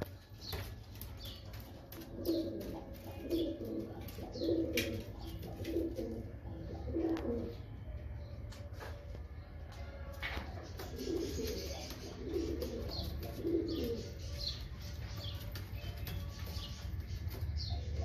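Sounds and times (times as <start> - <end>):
pigeons cooing: 0.0 - 9.0, 10.2 - 18.0.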